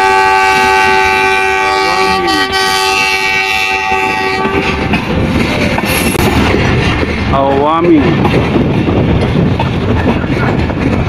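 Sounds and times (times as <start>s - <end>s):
locomotive air horn: 0.0s - 5.0s
train wheels rumbling and clattering: 0.0s - 11.0s.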